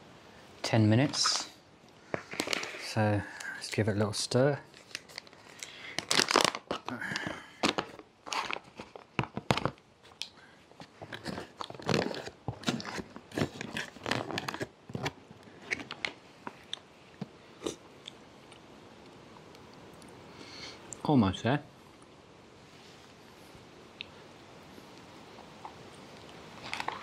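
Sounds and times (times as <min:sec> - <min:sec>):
food pouch crinkling: 0:02.2 - 0:03.4, 0:04.7 - 0:16.9, 0:26.6 - 0:27.0.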